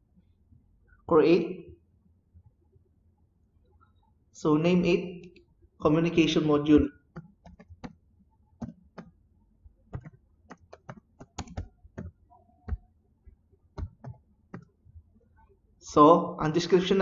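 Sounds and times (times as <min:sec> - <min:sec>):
computer keyboard typing: 0:06.8 - 0:08.0, 0:08.6 - 0:09.1, 0:09.9 - 0:12.9, 0:13.8 - 0:14.7.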